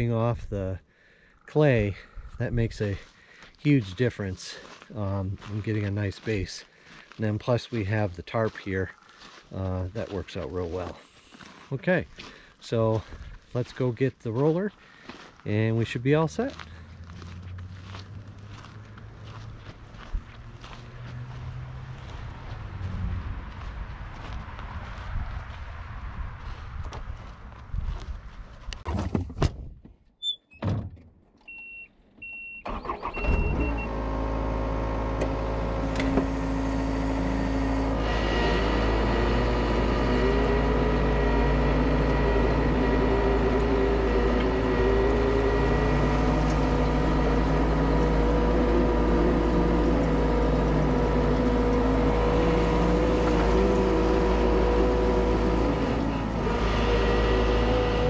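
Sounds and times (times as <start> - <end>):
diesel engine running: 1.7 - 24.3, 32.7 - 58.0
short electronic beeps: 31.4 - 33.9.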